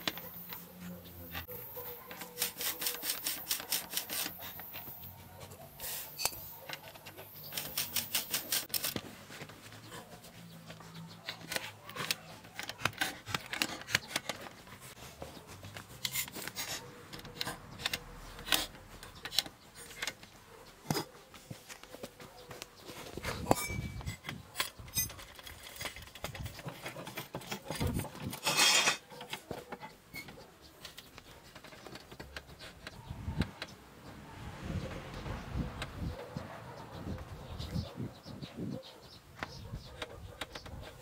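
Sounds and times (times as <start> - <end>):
hand tools knocking and clattering: 23.2 - 32.9.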